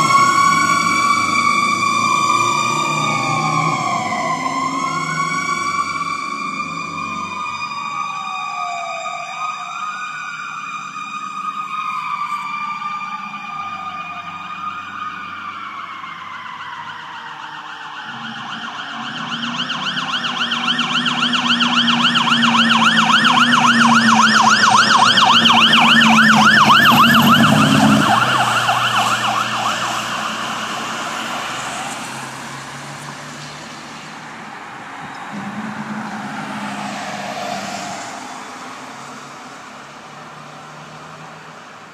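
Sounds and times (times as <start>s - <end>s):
siren yelping: 0.0s - 32.8s
siren wailing: 0.0s - 33.3s, 34.9s - 39.7s
fire truck engine running: 0.0s - 34.5s.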